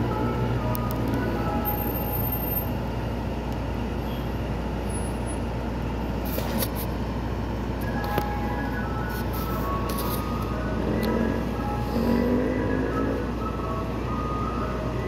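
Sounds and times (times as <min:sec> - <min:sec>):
ice cream truck chime melody: 0:00.0 - 0:03.0, 0:07.4 - 0:15.0
ice cream truck idling: 0:00.0 - 0:15.0.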